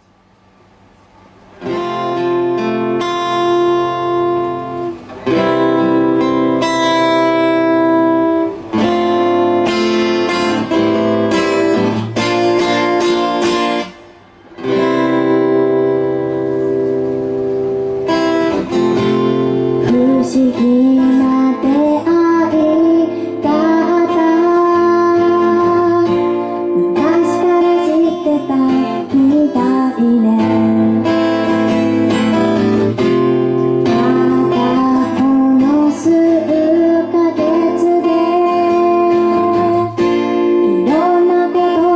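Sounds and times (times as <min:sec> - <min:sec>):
acoustic guitar strumming: 0:01.4 - 0:41.9
woman singing: 0:19.8 - 0:31.6, 0:33.8 - 0:41.9.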